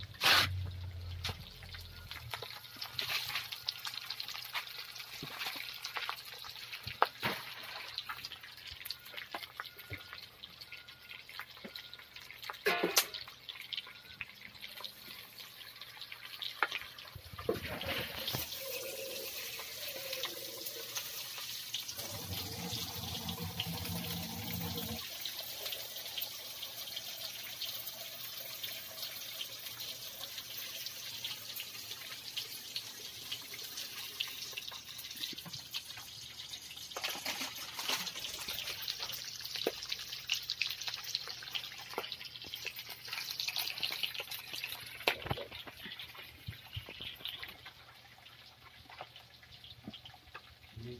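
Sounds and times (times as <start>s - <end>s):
chicken frying in oil: 0.0s - 50.9s
low hum: 22.0s - 25.0s.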